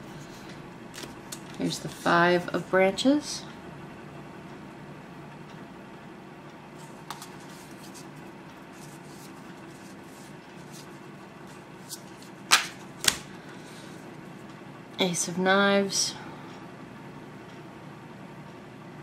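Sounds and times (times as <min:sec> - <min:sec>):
steady low hum: 0:00.0 - 0:19.0
light ticks of cards moving: 0:06.8 - 0:13.2
sharp card snaps: 0:12.5 - 0:13.3.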